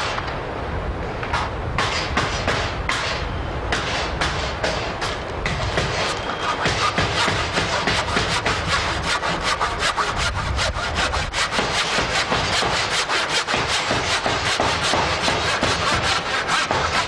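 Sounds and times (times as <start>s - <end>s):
handsaw cutting wood: 3.9s - 17.0s.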